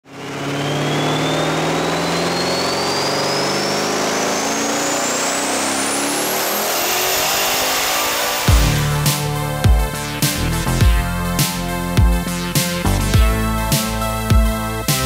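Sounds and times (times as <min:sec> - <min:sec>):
car engine running under load: 0:00.0 - 0:11.3
high turbo whine: 0:00.0 - 0:15.0.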